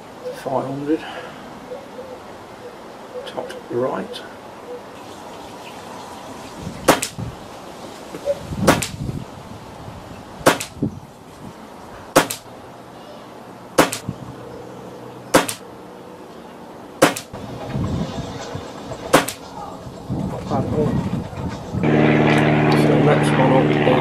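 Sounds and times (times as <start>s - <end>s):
air rifle shots: 6.9s - 7.2s, 8.7s - 9.0s, 10.4s - 10.8s, 12.2s - 12.5s, 13.8s - 14.1s, 15.3s - 15.6s, 17.0s - 17.4s, 19.1s - 19.5s.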